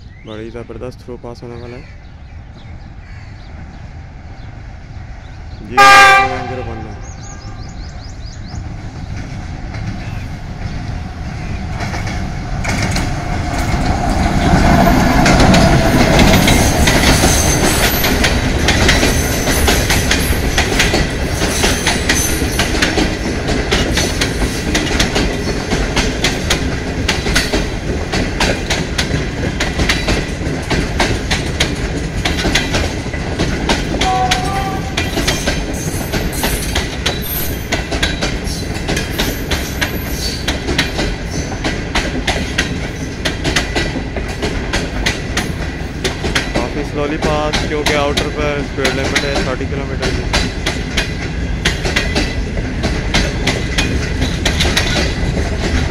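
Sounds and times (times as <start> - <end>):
diesel locomotive passing: 0.0 - 55.9
train wheels clacking on rail joints: 7.5 - 55.9.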